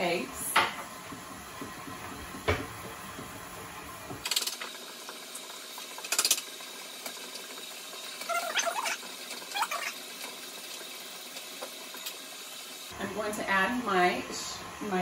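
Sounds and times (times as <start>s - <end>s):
electric stand mixer running: 0.0s - 5.4s.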